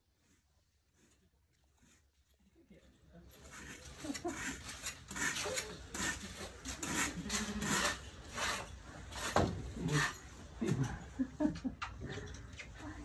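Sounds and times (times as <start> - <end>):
rakes scraping hay on floor: 3.4 - 10.2.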